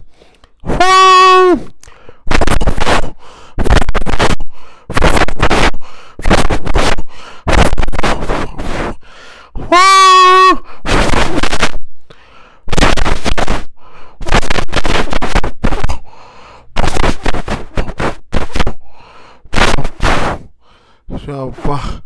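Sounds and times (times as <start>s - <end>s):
man imitating train hoot: 0.6s - 4.2s, 9.6s - 11.5s
man imitating train chuffing: 0.7s - 1.7s.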